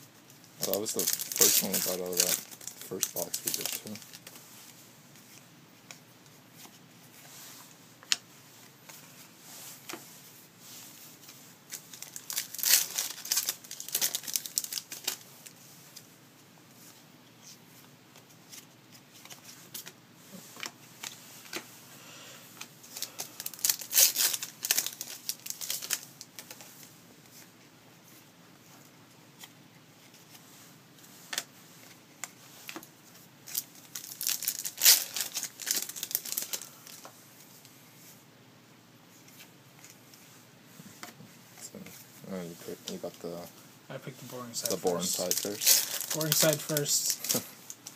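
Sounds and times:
wrappers torn and crinkled: 0.6s - 4.3s, 11.7s - 15.2s, 22.9s - 26.6s, 33.4s - 37.0s, 44.6s - 47.9s.

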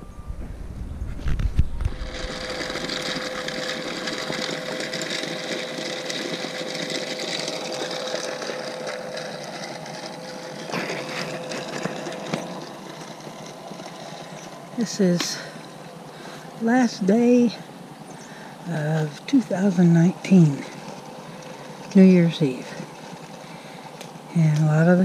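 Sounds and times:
low rumble with thumps: 0.0s - 5.1s
motor hum: 0.0s - 25.0s
stones rattling in tumbler barrel: 1.8s - 17.6s, 18.3s - 25.0s.

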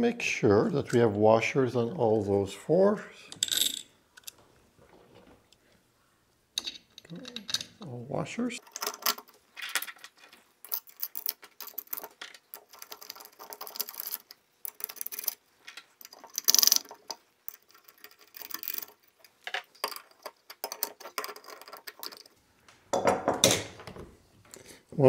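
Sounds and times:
metal washers and nuts clicking: 6.6s - 8.0s, 8.6s - 22.4s.

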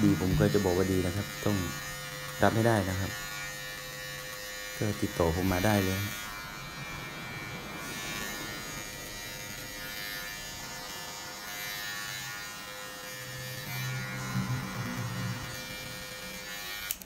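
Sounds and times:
hair clipper running: 0.0s - 17.0s
deeper hum: 13.2s - 16.7s.

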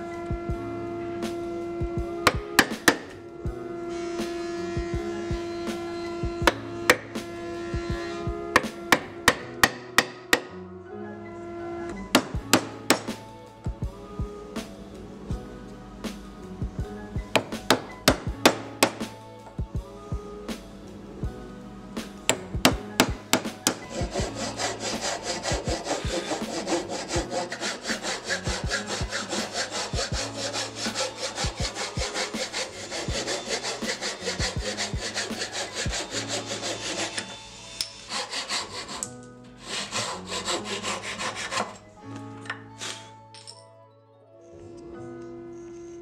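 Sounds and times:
chisel knocking on wood: 2.2s - 3.2s, 6.3s - 7.2s, 8.5s - 10.5s, 12.1s - 13.2s, 17.3s - 19.2s, 22.3s - 37.0s
handsaw cutting wood: 2.3s - 3.2s, 12.2s - 13.2s, 17.4s - 19.1s, 22.3s - 41.8s.

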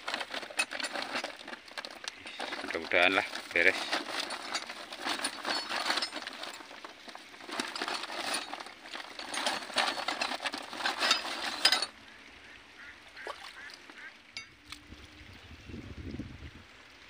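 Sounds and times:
metal tools clinking: 0.0s - 12.0s.

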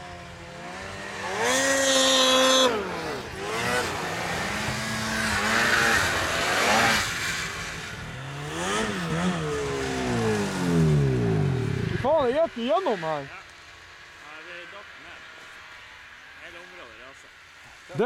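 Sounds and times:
snowmobile engine revving: 0.0s - 13.5s.

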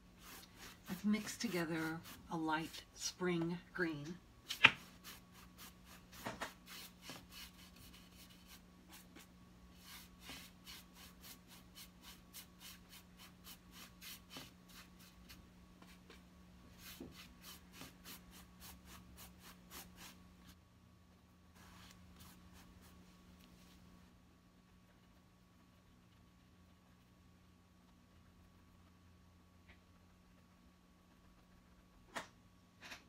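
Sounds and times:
paintbrush scratchy strokes: 0.0s - 3.1s, 4.8s - 16.1s, 16.7s - 20.2s, 21.6s - 23.9s.

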